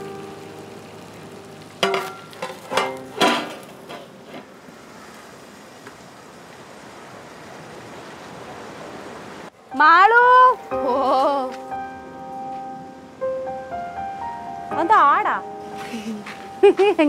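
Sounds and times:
metal lid clanking on pan: 1.8s - 4.5s.

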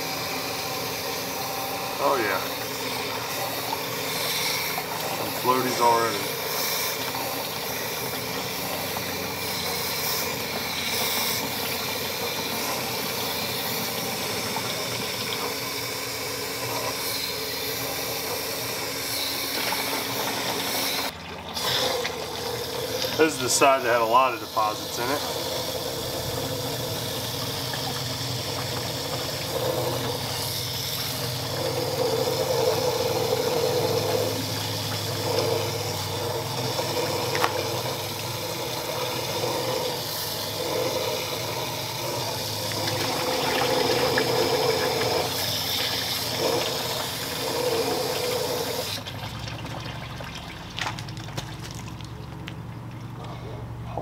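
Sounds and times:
hose water rushing: 0.0s - 53.4s
water pouring into a plastic bin: 19.5s - 30.4s, 31.0s - 53.2s.

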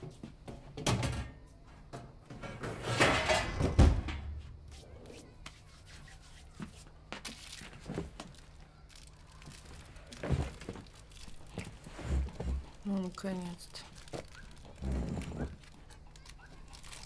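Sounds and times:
rustling and rubbing: 4.6s - 17.0s.

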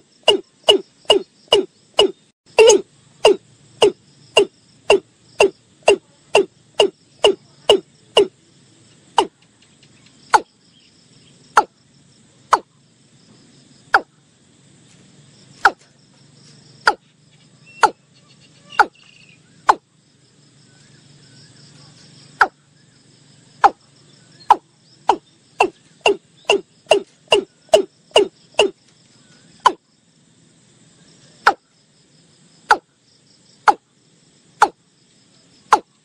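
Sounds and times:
bird calling with falling notes: 16.9s - 19.8s.

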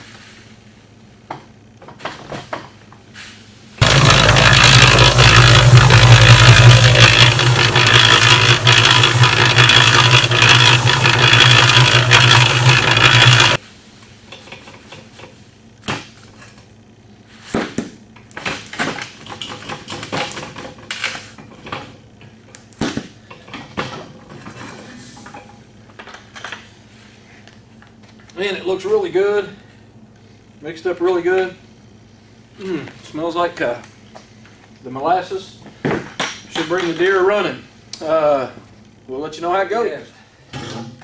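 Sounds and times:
concrete mixer humming and rattling: 3.8s - 13.6s
plastic buckets knocking and scraping: 3.8s - 13.6s.

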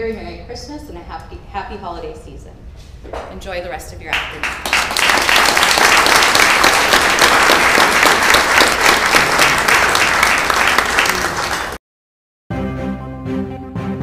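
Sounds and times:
audience applauding: 4.2s - 11.8s.

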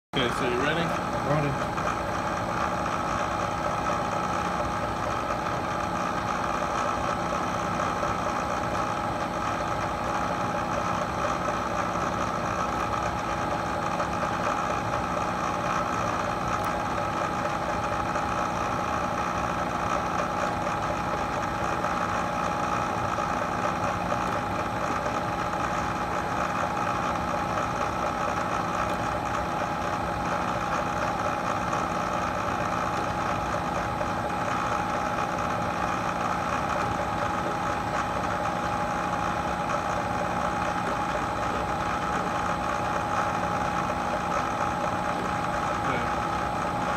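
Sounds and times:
milling machine humming: 0.2s - 46.9s.

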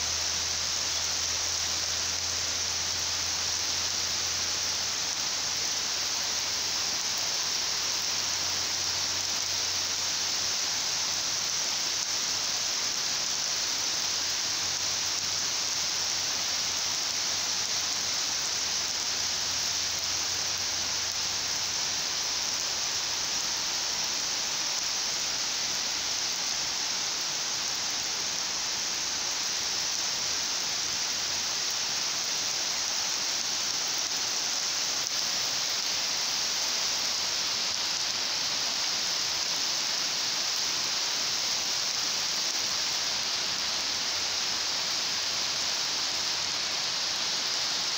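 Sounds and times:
heavy rain pouring: 0.0s - 47.9s.

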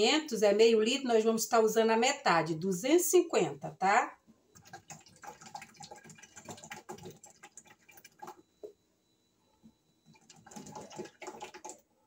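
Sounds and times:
liquid pouring into funnel: 4.5s - 8.7s, 10.0s - 11.9s.

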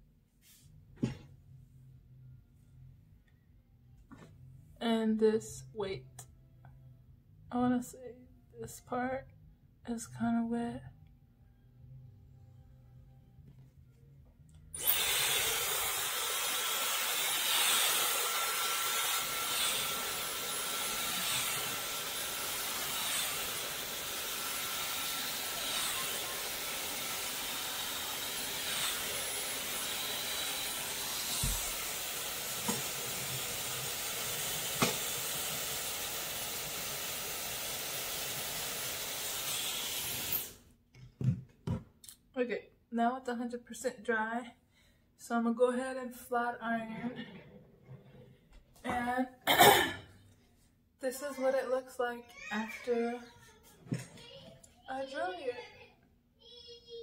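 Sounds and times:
hair dryer blowing: 14.8s - 40.6s.

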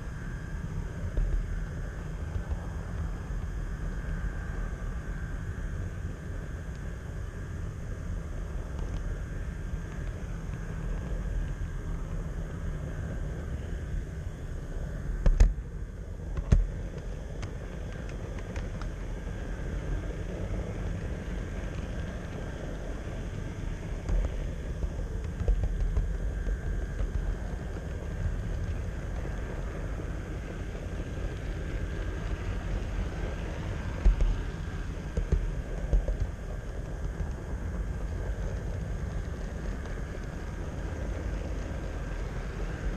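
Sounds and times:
model train rumbling on track: 17.6s - 42.9s.

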